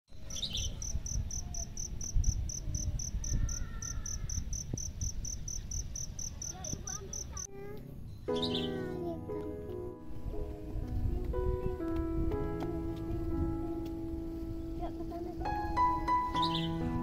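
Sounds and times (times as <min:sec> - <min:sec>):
insect chirping: 0:00.3 - 0:07.5.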